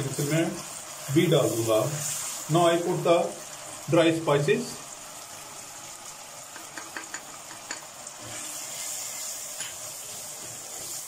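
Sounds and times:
onions sizzling in oil: 0.0s - 11.0s
wooden spatula clicking on pot: 6.5s - 7.9s.

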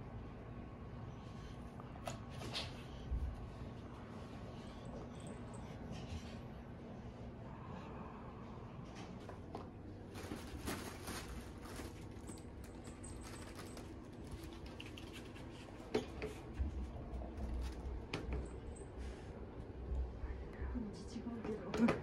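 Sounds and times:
rustling of fabric tunnel: 10.1s - 14.5s.

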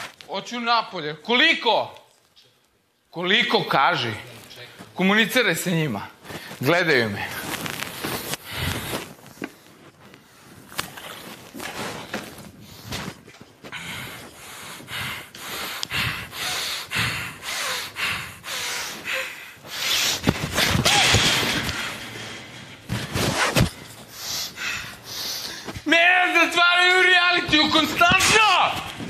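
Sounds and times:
man breathing hard: 8.0s - 9.2s, 11.7s - 22.7s, 23.7s - 25.9s.

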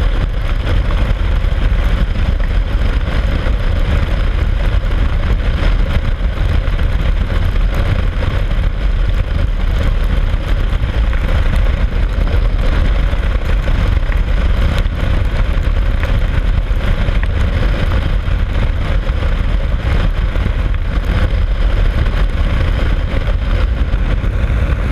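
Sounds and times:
motorcycle engine running: 0.0s - 24.9s
wind and road noise: 0.0s - 24.9s
wind buffeting microphone: 0.0s - 24.9s.

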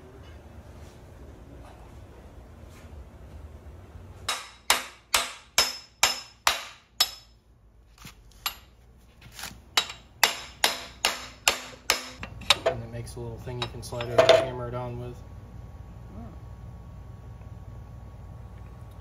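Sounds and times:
hammer striking metal: 4.3s - 7.4s, 9.8s - 12.7s.

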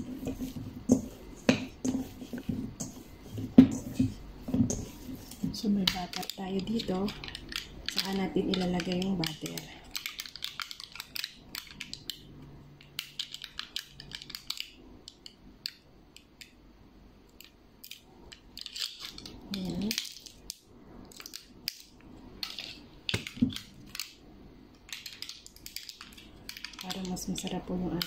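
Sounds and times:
butter wrapper crinkling: 5.9s - 12.2s, 12.9s - 14.8s, 17.8s - 20.5s, 24.8s - 27.5s.

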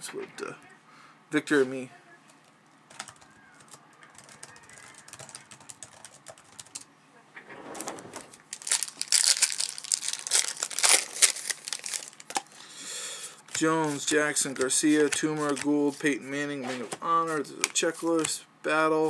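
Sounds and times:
wrapper crinkling and tearing: 8.1s - 12.6s.

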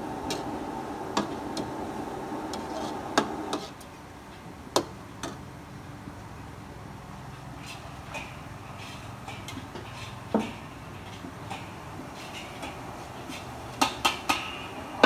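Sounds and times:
food sizzling: 0.0s - 3.8s.

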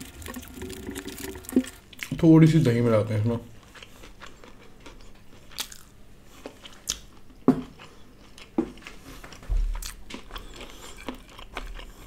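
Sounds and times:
chewing with mouth smacks: 3.6s - 12.0s.

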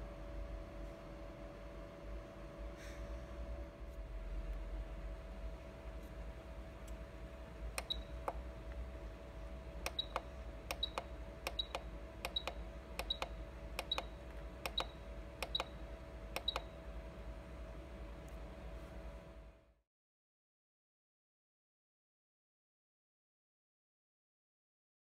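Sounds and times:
machine hum: 0.0s - 19.7s
button clicks with high beeps: 7.8s - 8.4s, 9.9s - 15.8s, 16.4s - 16.8s.

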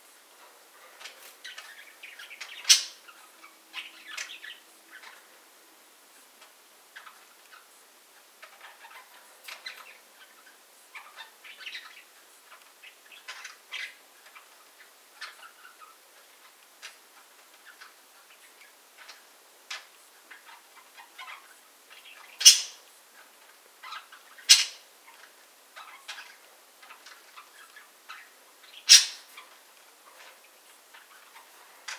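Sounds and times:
budgerigars chirping: 1.4s - 5.4s, 6.9s - 29.6s
loud sharp bird notes: 28.8s - 29.3s.

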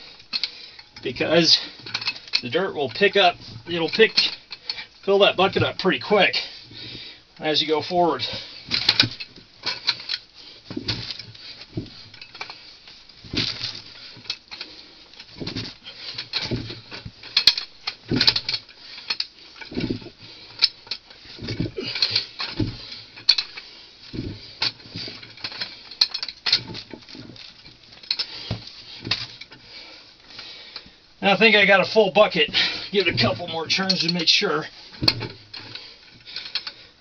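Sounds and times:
auger scraping and knocking in hole: 30.5s - 36.8s.

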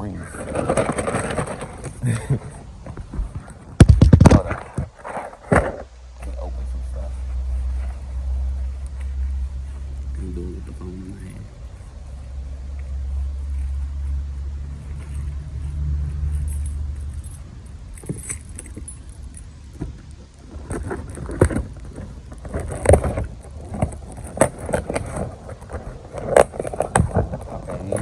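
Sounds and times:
loose parts clattering: 0.3s - 6.4s, 16.3s - 28.0s
cardboard box rustling: 0.4s - 2.0s
low steady rumble: 4.5s - 28.0s.

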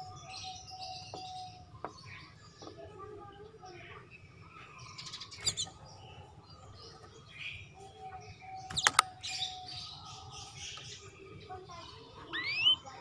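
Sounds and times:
canary chirping: 0.0s - 13.0s
sharp clicks: 8.7s - 9.2s.

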